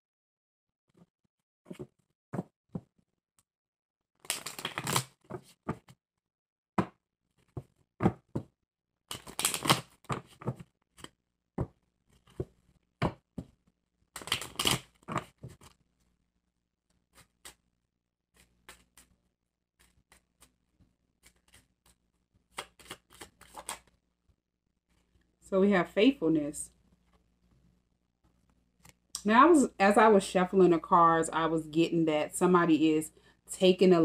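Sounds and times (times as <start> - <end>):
cards being shuffled: 4.2 - 5.9, 9.1 - 13.6, 14.2 - 15.8, 17.1 - 17.6, 18.4 - 19.2, 21.2 - 24.0
cards tapping and clicking: 9.1 - 10.7, 18.4 - 19.1.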